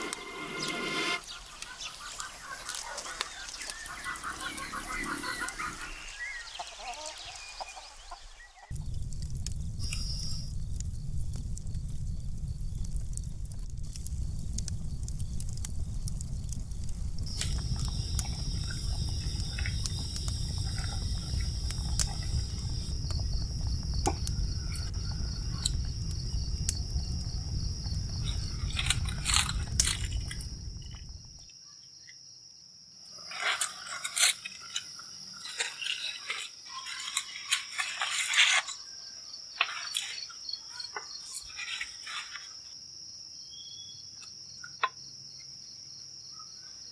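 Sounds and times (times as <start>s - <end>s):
sharp crackles and clicks: 0.0s - 6.3s, 8.7s - 31.6s, 33.1s - 38.8s
cricket trilling: 0.0s - 7.1s, 8.7s - 46.9s
wood fire rumbling: 8.7s - 31.4s.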